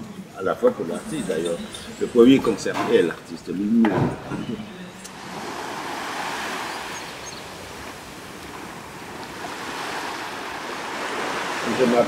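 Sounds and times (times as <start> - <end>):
small waves breaking on beach: 5.1 - 12.0.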